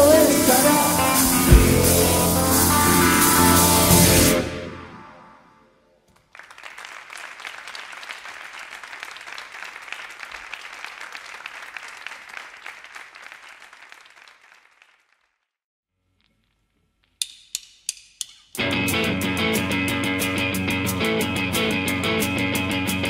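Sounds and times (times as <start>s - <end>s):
band last notes ringing: 0.9s - 5.3s
audience applause: 6.2s - 15.3s.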